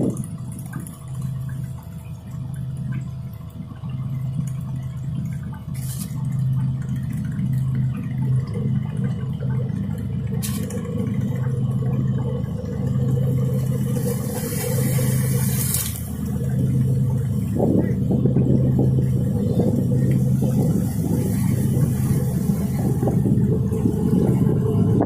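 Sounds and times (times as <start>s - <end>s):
steady low hum: 0.0s - 25.0s
water sloshing among rocks: 13.0s - 25.0s.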